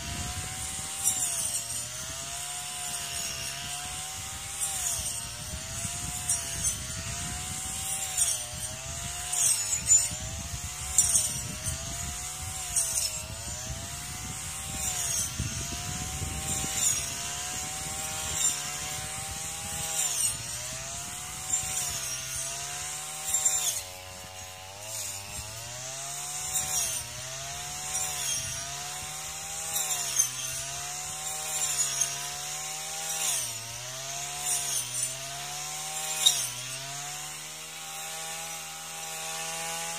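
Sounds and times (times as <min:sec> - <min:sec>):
brush cutter engine running: 0:00.0 - 0:39.9.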